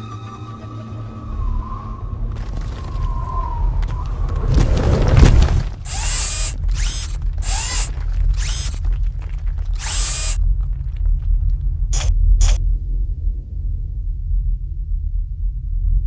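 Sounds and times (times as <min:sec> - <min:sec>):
low rumble: 0:00.5 - 0:16.0
rock collapsing crash: 0:02.3 - 0:05.9, 0:06.6 - 0:09.8.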